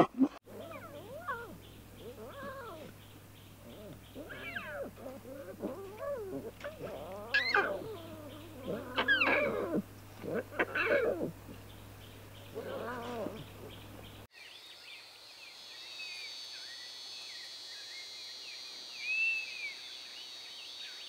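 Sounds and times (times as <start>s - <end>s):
lion cubs mewing: 0.4s - 14.3s.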